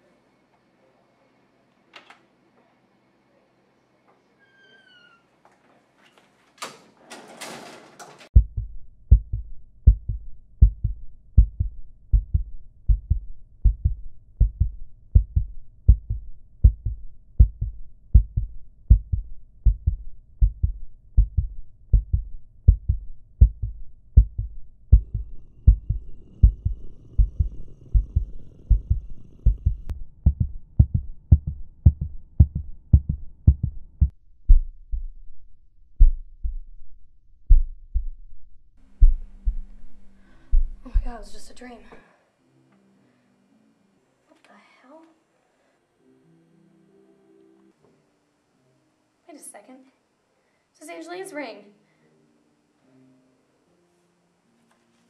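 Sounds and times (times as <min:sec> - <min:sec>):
heartbeat thumps: 0:08.4 - 0:35.3, 0:36.0 - 0:36.8, 0:37.5 - 0:41.6.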